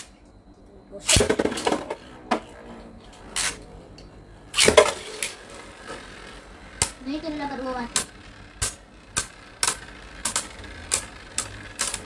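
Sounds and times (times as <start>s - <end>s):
spinning tops clacking together: 7.9s - 12.0s.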